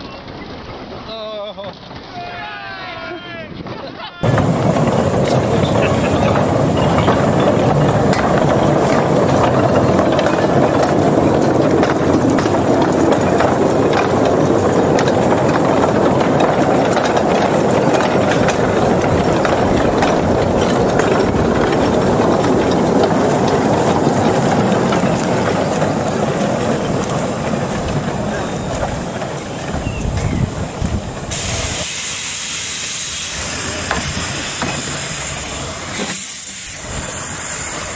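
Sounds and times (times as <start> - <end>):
wagon wheels rolling on rails: 3.5 - 37.9
wagon clicks and clanks: 4.2 - 31.6.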